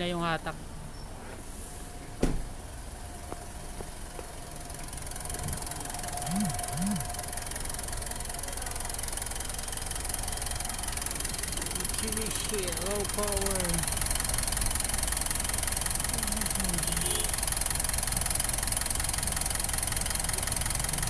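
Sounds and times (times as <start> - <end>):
diesel engine idling: 0.0 - 21.0
sharp thump: 2.2 - 2.5.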